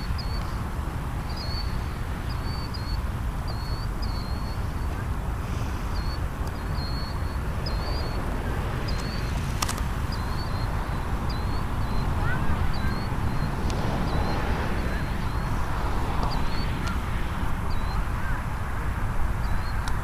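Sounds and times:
small bird chirping: 0.0 - 0.6, 1.2 - 5.1, 5.7 - 17.0, 17.6 - 18.4
jet engines rumbling at takeoff: 0.0 - 20.0.

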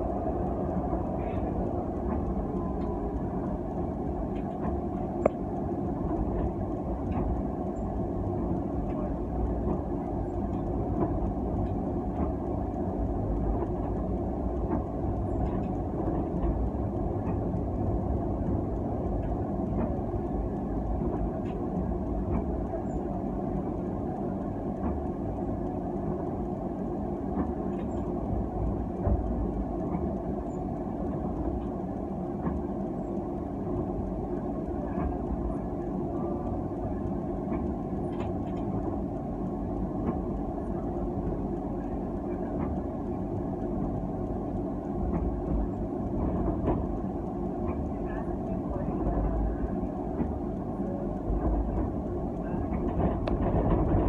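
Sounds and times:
tram wheels rumbling on rail: 0.0 - 54.0.

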